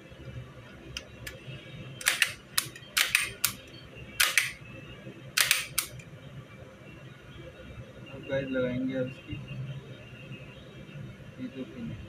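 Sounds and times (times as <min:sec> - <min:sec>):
pistol parts clicking: 0:02.0 - 0:03.6, 0:04.2 - 0:04.6, 0:05.4 - 0:06.0.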